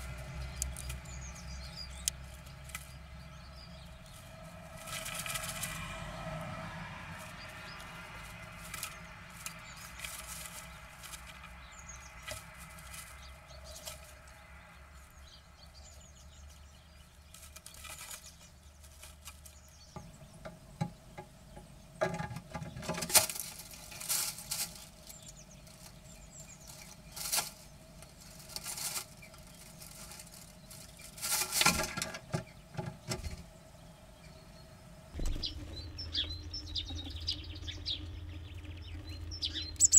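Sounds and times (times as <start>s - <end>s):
birds scratching in nest material: 0.0s - 14.6s, 15.2s - 20.2s, 22.0s - 33.5s, 39.7s - 39.9s
wing flutters: 4.0s - 6.0s, 7.1s - 11.6s, 22.9s - 32.2s.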